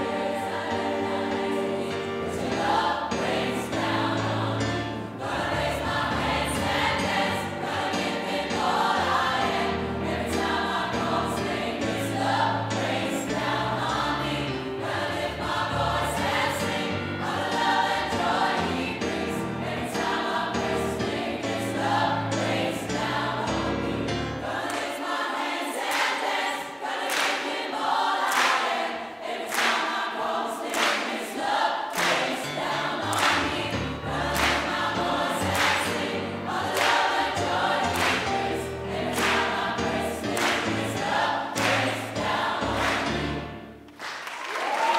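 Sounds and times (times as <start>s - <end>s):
choir singing in harmony: 0.0s - 43.9s
audience clapping along: 27.0s - 42.0s, 42.6s - 44.9s.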